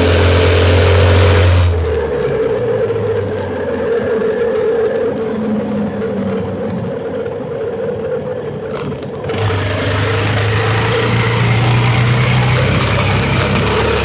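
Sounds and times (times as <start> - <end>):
small bicycle engine running: 0.0 - 14.0.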